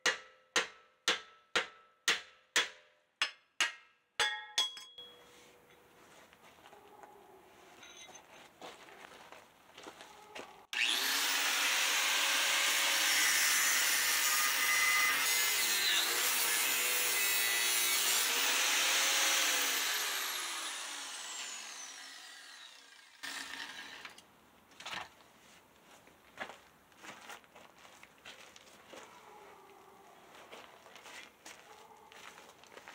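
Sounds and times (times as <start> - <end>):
power grinder on steel: 10.7 - 24.2.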